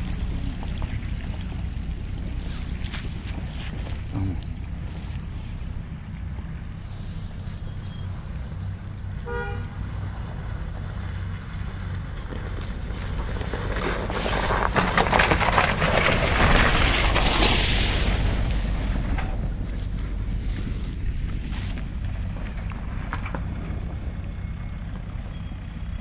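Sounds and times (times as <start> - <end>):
off-road vehicle engine running: 0.0 - 26.0
car horn toot: 9.2 - 9.8.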